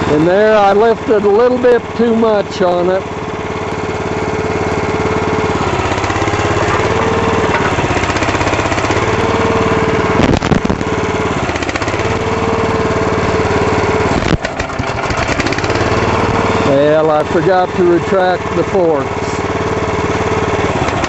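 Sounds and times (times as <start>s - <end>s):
forklift engine running: 0.0s - 21.0s
hydraulics working: 0.0s - 21.0s
sharp clunks: 6.6s - 7.9s.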